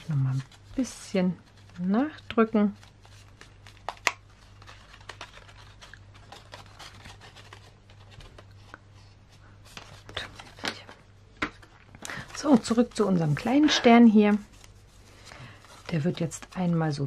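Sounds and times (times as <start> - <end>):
heavy paper crackling: 0.0 - 8.8, 11.6 - 17.0.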